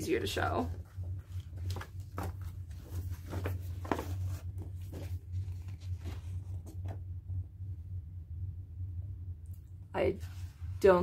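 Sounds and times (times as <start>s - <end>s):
steady low hum: 0.0s - 11.0s
paper rustling: 0.7s - 7.0s.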